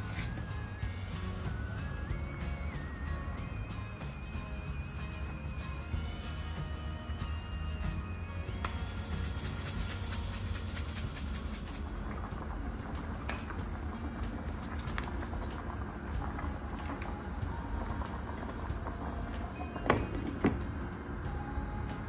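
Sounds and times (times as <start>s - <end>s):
water bubbling in a pan: 10.4s - 21.4s.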